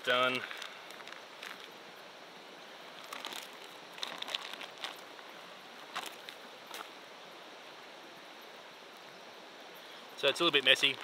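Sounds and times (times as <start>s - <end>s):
steady hiss: 0.0s - 11.0s
soft clicks and crackles: 0.2s - 1.8s.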